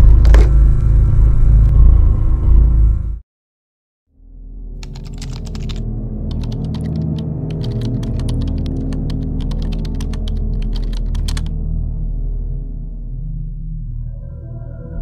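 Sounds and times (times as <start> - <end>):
low steady drone: 0.0 - 3.2, 4.2 - 15.0
rapid keyboard typing: 4.8 - 11.5.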